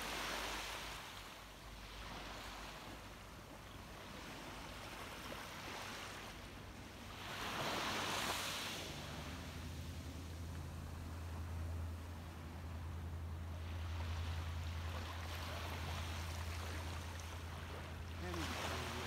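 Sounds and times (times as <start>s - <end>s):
small waves lapping on sand: 0.0s - 19.0s
low steady hum: 9.0s - 19.0s.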